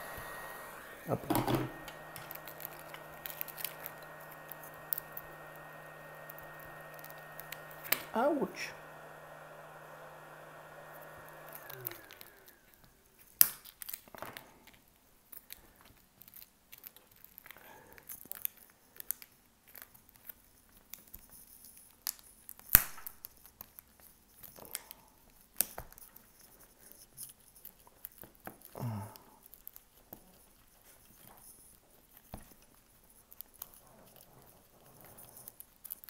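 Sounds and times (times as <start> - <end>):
small motor humming: 0.0 - 13.0.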